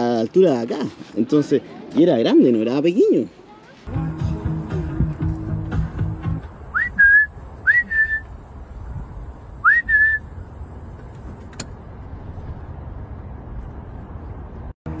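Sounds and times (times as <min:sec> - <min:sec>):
person whistling: 0:06.7 - 0:08.3, 0:09.6 - 0:10.3.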